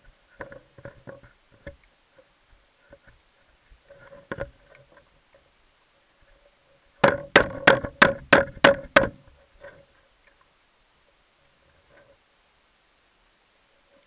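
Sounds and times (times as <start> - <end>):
faint steady hum: 0.0 - 14.0
sharp knocks underwater: 7.0 - 9.2
faint clicks: 9.6 - 11.2.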